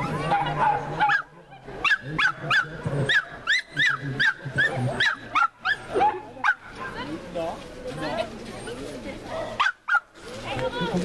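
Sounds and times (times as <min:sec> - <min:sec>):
dog yipping: 0:09.5 - 0:10.1.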